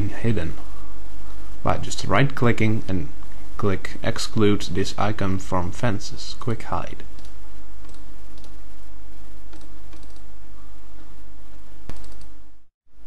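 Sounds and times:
low hum: 0:00.0 - 0:13.0
computer mouse clicks: 0:07.2 - 0:08.6, 0:09.5 - 0:10.3, 0:11.9 - 0:12.4.

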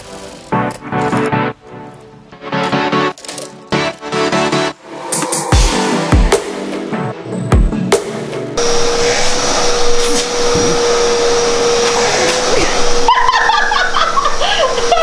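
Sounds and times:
rush of air: 0:04.8 - 0:06.0
vacuum cleaner whine: 0:08.6 - 0:15.0.

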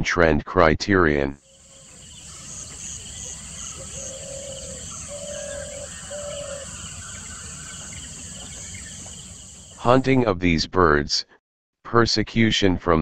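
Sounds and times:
insects chirring: 0:01.4 - 0:09.9.

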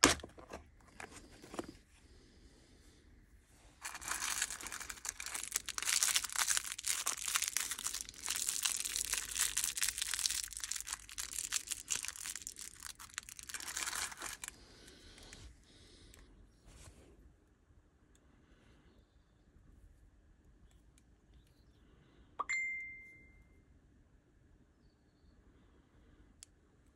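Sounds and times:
plastic bag crinkling: 0:03.8 - 0:15.4.

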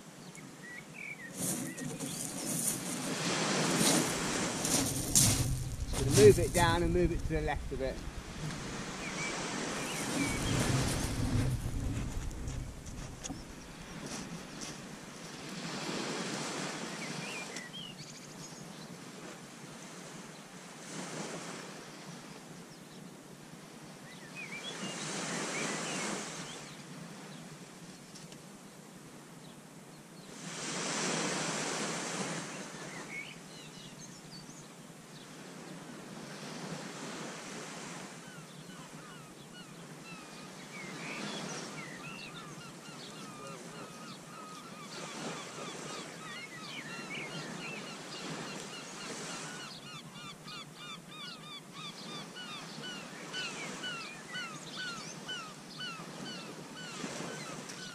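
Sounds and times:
small waves breaking on sand: 0:01.2 - 0:17.9, 0:18.6 - 0:22.6, 0:23.4 - 0:28.6, 0:30.2 - 0:34.0, 0:34.9 - 0:50.0, 0:51.8 - 0:57.9
steady hiss of surf: 0:01.3 - 0:17.6, 0:19.0 - 0:22.4, 0:30.3 - 0:33.6, 0:34.8 - 0:38.4.

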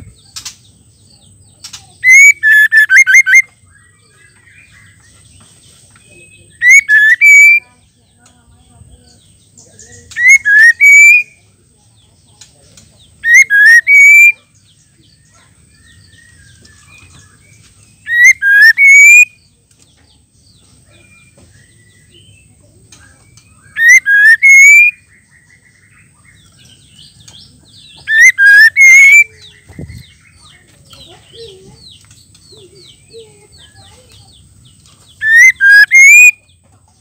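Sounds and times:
faint bird chirping: 0:00.0 - 0:37.0
bird rising whistles: 0:02.1 - 0:03.4, 0:06.6 - 0:07.6, 0:10.2 - 0:11.3, 0:13.2 - 0:14.3, 0:18.0 - 0:19.3, 0:23.7 - 0:25.0, 0:28.1 - 0:29.3, 0:35.2 - 0:36.4.

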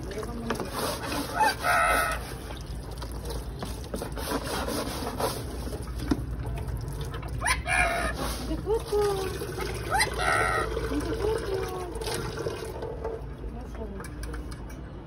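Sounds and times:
parakeet squawking: 0:01.0 - 0:02.5, 0:07.4 - 0:08.5, 0:09.7 - 0:10.8.

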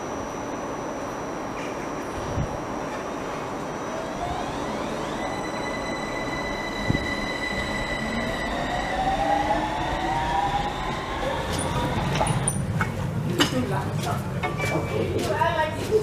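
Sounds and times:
wheels rumbling on rails: 0:01.9 - 0:16.0
electric train motor whine: 0:03.1 - 0:12.6.

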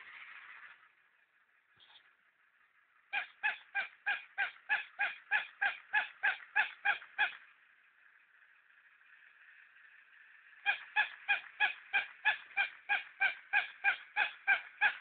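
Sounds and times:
toy dog electronic yaps: 0:03.1 - 0:07.4, 0:10.6 - 0:15.0.

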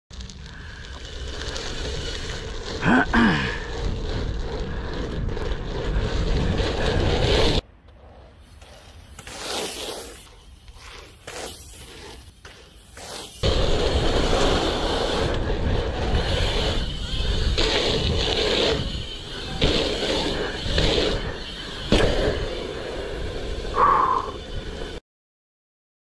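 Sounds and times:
bike tyres rolling on dirt: 0:00.1 - 0:25.0
wind rushing over microphone: 0:03.5 - 0:07.6, 0:13.4 - 0:25.0.

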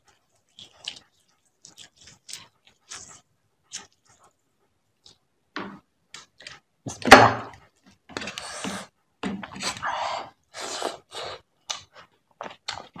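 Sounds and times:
wet squelches of food handling: 0:00.0 - 0:05.3.

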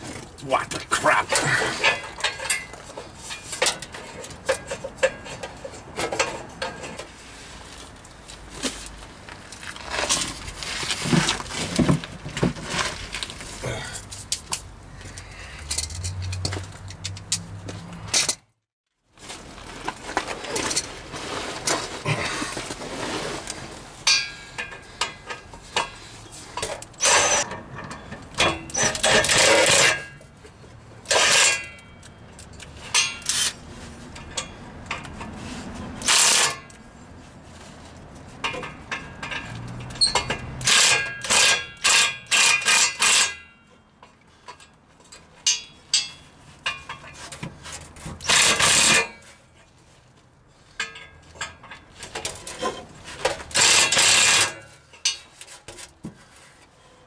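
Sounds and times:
hand tools clinking on metal: 0:26.6 - 0:30.2, 0:50.7 - 0:55.6.

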